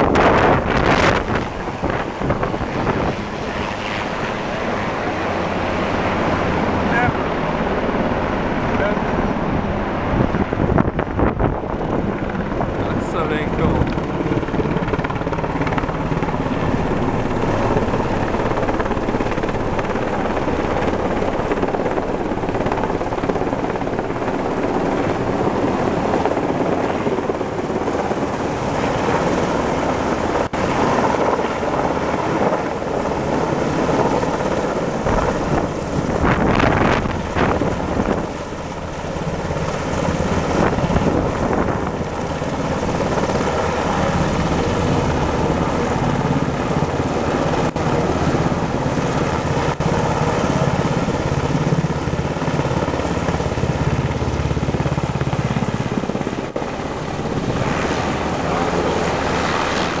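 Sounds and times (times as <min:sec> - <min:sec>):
helicopter rotor and engines: 0:00.0 - 1:00.0.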